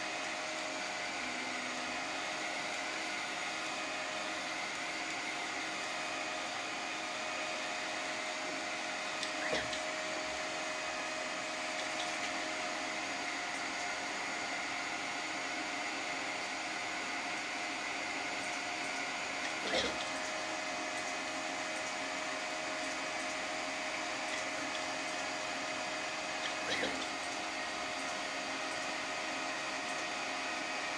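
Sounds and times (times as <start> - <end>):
three d printer whirring: 0.0 - 30.9.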